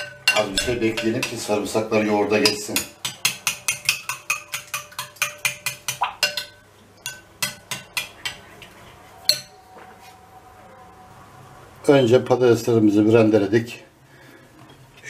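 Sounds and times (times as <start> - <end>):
spoon clinking in glass bowl: 0.0 - 1.5, 2.4 - 8.4, 9.3 - 9.6.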